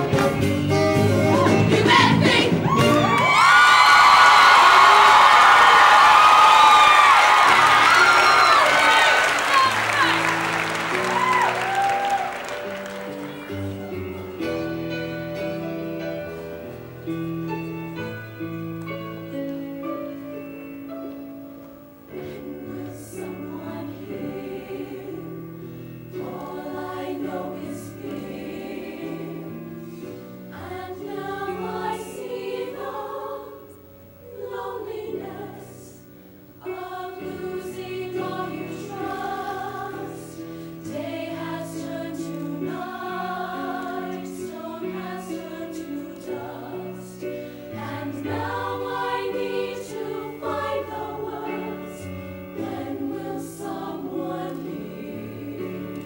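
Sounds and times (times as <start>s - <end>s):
instrumental accompaniment: 0.0s - 3.4s
choir singing in harmony: 0.0s - 21.3s, 22.0s - 56.0s.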